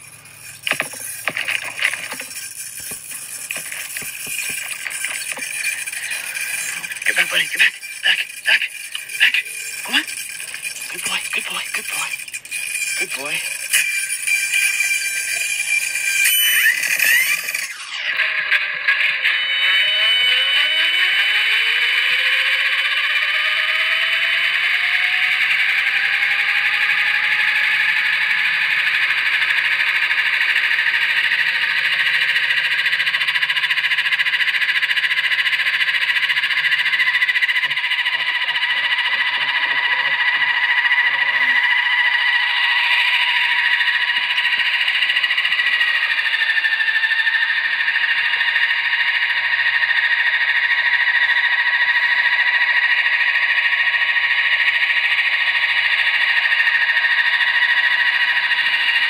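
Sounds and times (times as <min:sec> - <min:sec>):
rc helicopter motor whine: 0:00.0 - 0:59.0.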